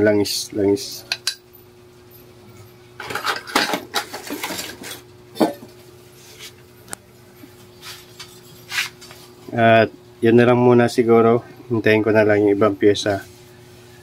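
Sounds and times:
metal engine parts clinking: 0:03.0 - 0:05.7.

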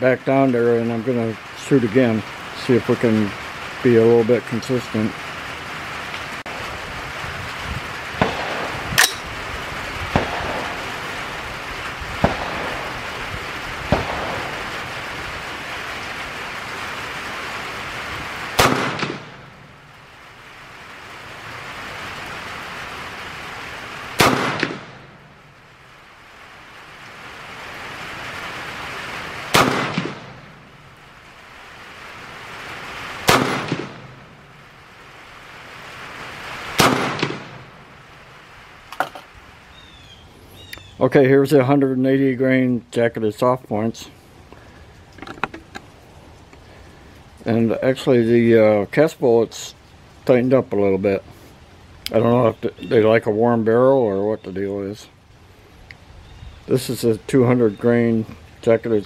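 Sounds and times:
rain hissing: 0:00.0 - 0:59.0
rifle shots: 0:08.2 - 0:09.4, 0:10.1 - 0:11.1, 0:12.2 - 0:13.2, 0:13.9 - 0:15.0, 0:18.5 - 0:19.6, 0:24.2 - 0:25.3, 0:29.5 - 0:30.7, 0:33.2 - 0:34.4, 0:36.7 - 0:37.8.

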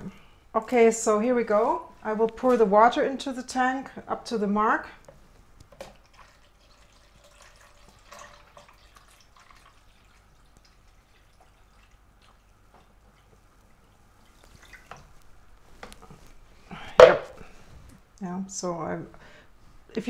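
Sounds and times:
faint water trickle: 0:05.9 - 0:15.4.

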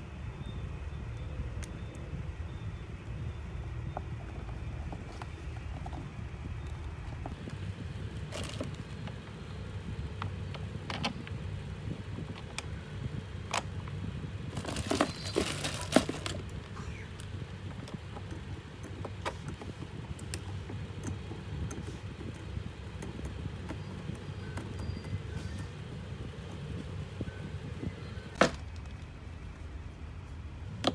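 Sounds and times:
steady low hum: 0:00.0 - 0:30.9
plastic bag crinkling: 0:08.3 - 0:08.8, 0:14.5 - 0:16.4.

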